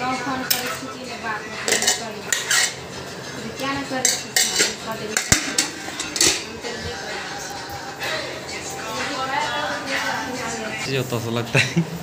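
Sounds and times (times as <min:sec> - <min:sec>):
steel plates and bowls clinking: 0:01.6 - 0:02.9, 0:03.5 - 0:06.6.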